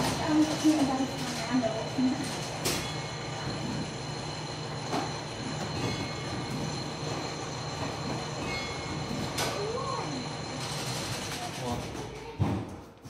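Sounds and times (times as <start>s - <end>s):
clock gears whirring and rattling: 5.3s - 12.0s.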